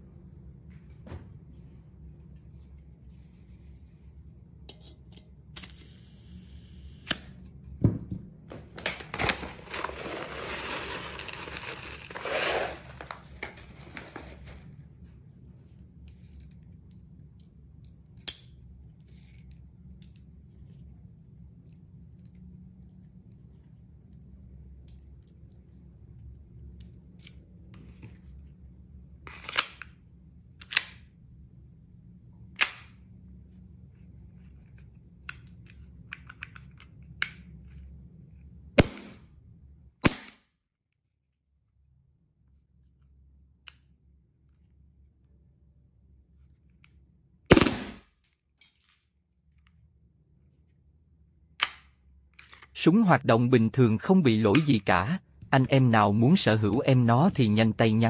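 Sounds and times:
gas hissing: 0:05.6 - 0:07.1.

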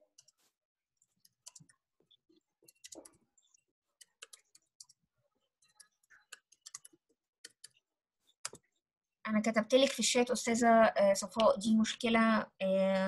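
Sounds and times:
typing on computer keyboard: 0:02.7 - 0:03.2, 0:04.0 - 0:05.0, 0:05.6 - 0:07.8.

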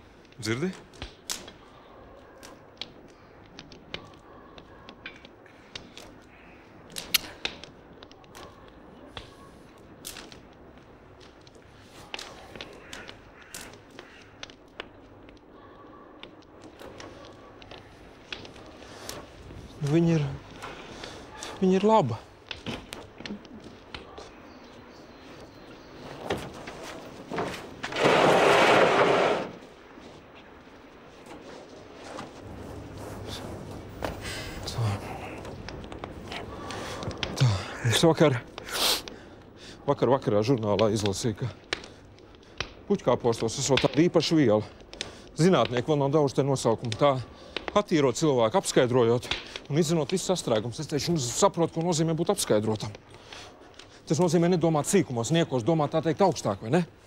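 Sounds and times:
box scraping across wooden bed: 0:27.8 - 0:29.6.

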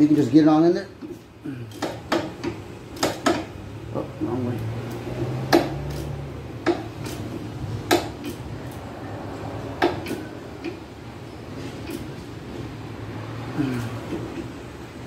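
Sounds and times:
hand ratchet clicking: 0:04.8 - 0:08.8, 0:09.8 - 0:10.8.

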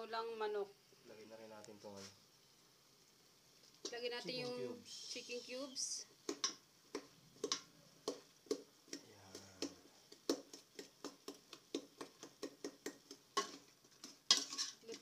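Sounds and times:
metal spoon clinking on pot: 0:14.3 - 0:15.0.

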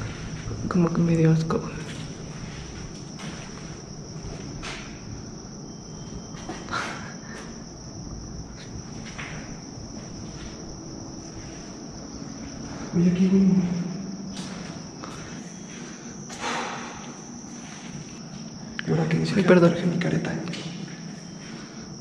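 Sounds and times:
footsteps and scuffs: 0:00.0 - 0:00.7, 0:01.7 - 0:06.8, 0:07.4 - 0:12.7, 0:14.3 - 0:18.6
crickets trilling: 0:00.0 - 0:22.0.

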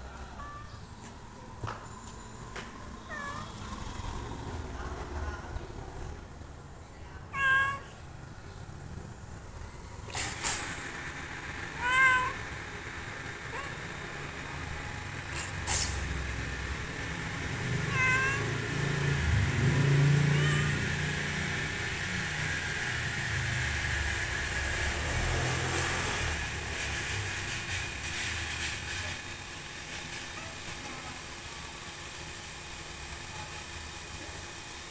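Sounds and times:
cat meowing: 0:00.4 - 0:00.8, 0:03.0 - 0:03.7, 0:07.3 - 0:08.0, 0:11.7 - 0:12.4, 0:13.5 - 0:13.9, 0:17.6 - 0:18.9, 0:20.2 - 0:21.0.

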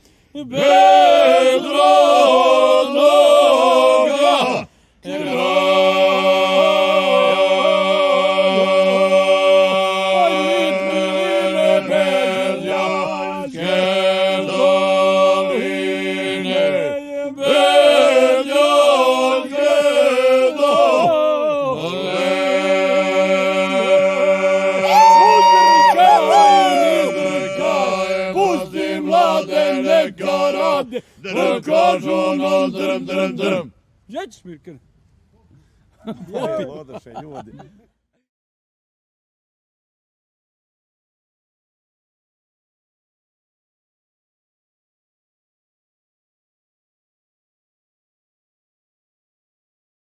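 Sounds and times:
men singing in harmony: 0:00.4 - 0:33.7.

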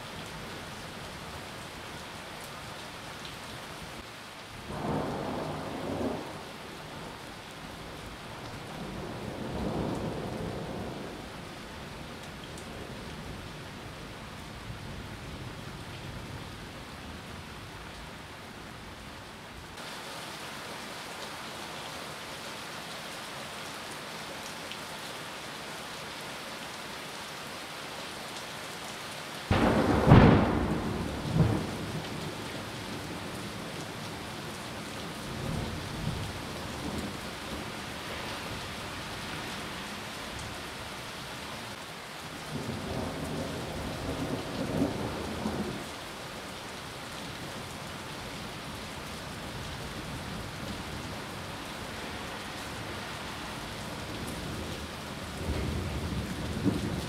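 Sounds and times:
heavy rain on leaves: 0:00.0 - 0:57.0
thunder rumbling: 0:04.7 - 0:06.5, 0:29.5 - 0:34.0
thunder clap: 0:29.5 - 0:31.9.

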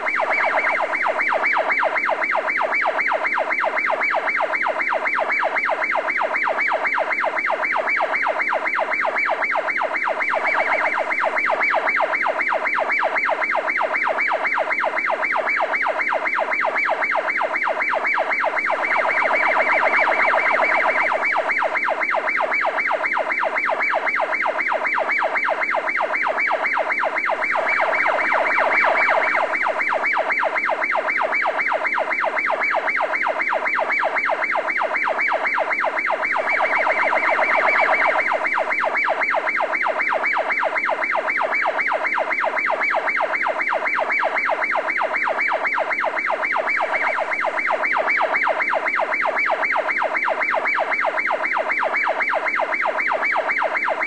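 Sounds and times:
electronic siren-like warbling tone: 0:18.7 - 0:21.7, 0:27.3 - 0:30.3, 0:36.3 - 0:38.8.

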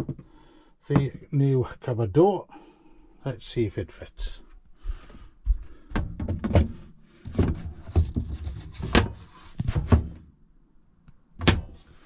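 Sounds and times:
rubbing handling noise: 0:05.0 - 0:10.3.

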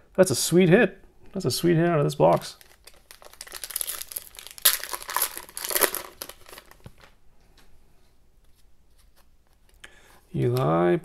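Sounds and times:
plastic wrapper crinkling: 0:02.1 - 0:07.2
handling of cards: 0:02.2 - 0:07.7, 0:08.4 - 0:09.8.

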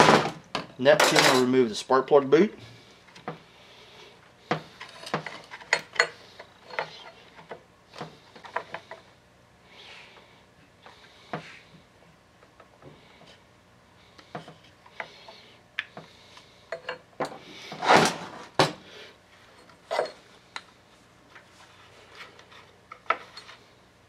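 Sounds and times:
tools handled on a workbench: 0:04.5 - 0:09.0, 0:19.5 - 0:20.7, 0:21.3 - 0:23.6.

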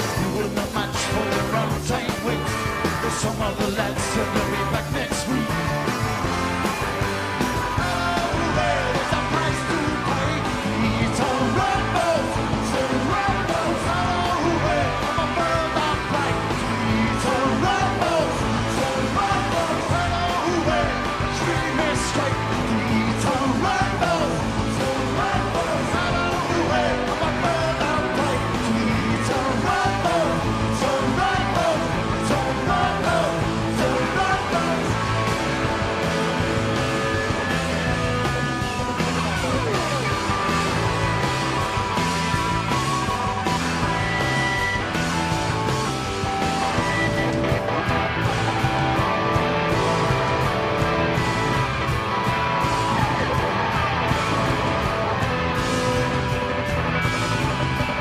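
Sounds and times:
drums: 0:00.0 - 0:58.0
electric guitars: 0:00.0 - 0:58.0
live rock band playing: 0:00.0 - 0:58.0
loud sung vocals: 0:07.8 - 0:35.3.

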